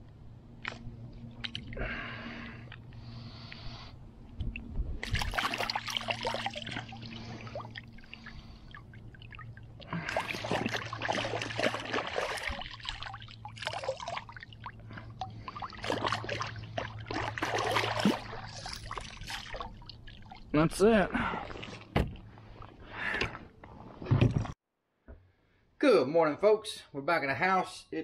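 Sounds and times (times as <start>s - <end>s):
splashing in river water: 5.0s - 20.5s.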